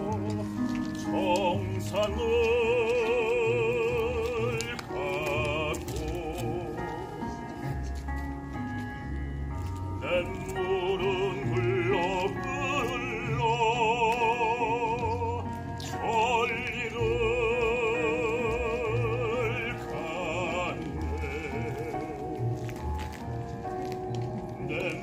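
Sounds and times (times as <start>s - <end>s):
man singing with vibrato: 0.0s - 7.4s, 10.0s - 22.5s, 24.6s - 25.0s
accompaniment through a speaker: 0.0s - 25.0s.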